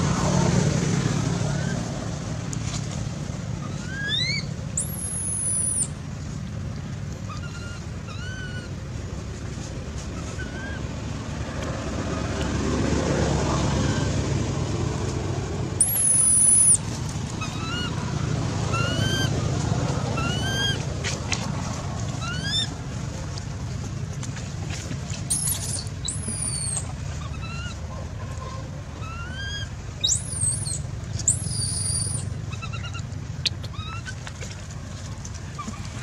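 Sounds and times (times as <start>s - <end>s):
low background rumble: 0.0s - 36.0s
squeaky animal calls: 3.7s - 5.9s, 7.3s - 8.8s, 15.8s - 16.8s, 22.2s - 22.7s, 25.3s - 27.8s, 29.0s - 34.2s
high-pitched whistling tones: 15.8s - 16.8s.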